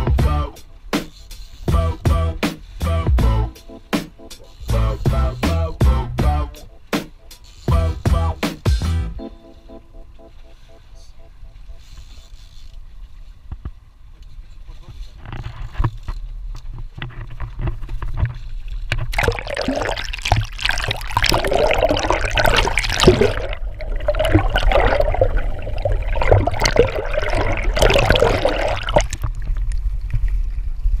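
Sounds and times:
low steady rumble: 1.7s - 3.6s, 4.6s - 6.9s, 16.2s - 31.0s
sea water sloshing and gurgling: 17.4s - 31.0s.

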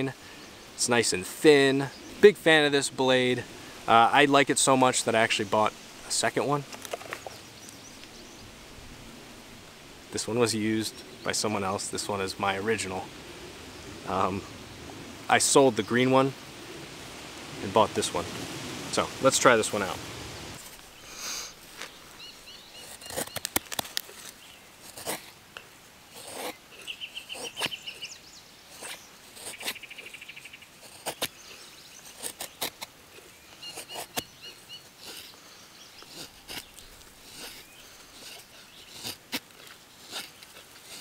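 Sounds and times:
knife scraping a dry stick: 20.6s - 41.0s.

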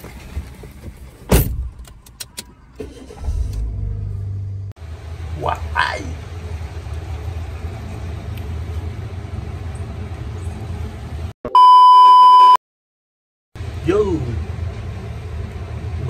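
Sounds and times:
test tone beep: 11.5s - 12.6s.

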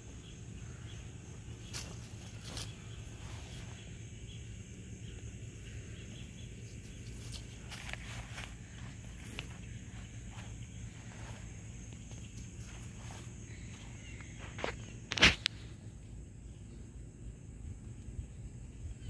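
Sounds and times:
faint high-pitched hum: 0.0s - 19.0s
rustles in grass: 1.3s - 4.1s, 6.6s - 15.7s.

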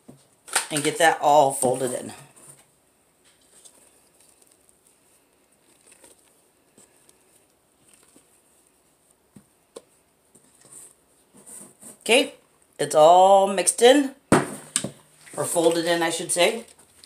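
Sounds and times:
spatula scraping and squishing: 3.3s - 9.2s.

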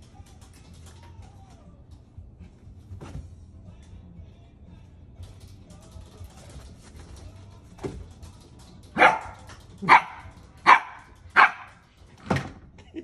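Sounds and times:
puppy barking: 9.0s - 11.8s.

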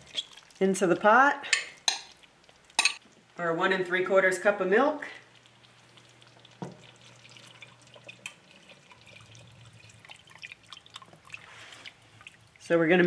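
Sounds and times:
milk pouring into a pot: 0.0s - 0.7s, 5.2s - 12.7s
wire whisk stirring in a pot: 5.3s - 12.7s.

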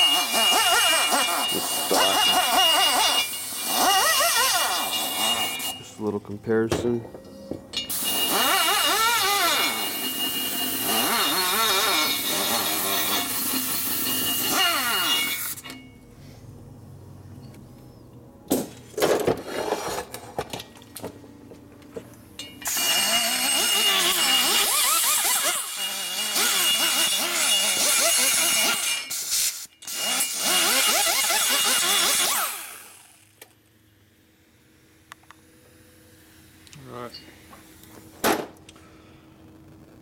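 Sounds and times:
rotary grinder cutting metal: 0.0s - 5.8s, 7.9s - 15.6s, 22.7s - 33.2s.

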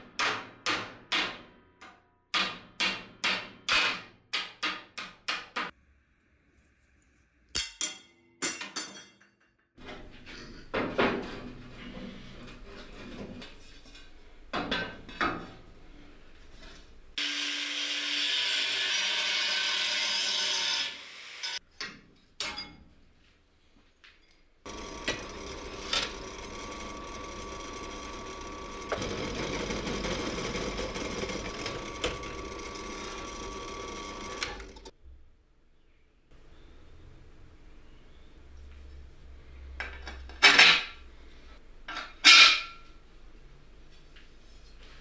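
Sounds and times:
power tool cutting or grinding: 17.2s - 21.6s, 24.7s - 34.9s
power tool whining steadily: 24.7s - 34.9s.

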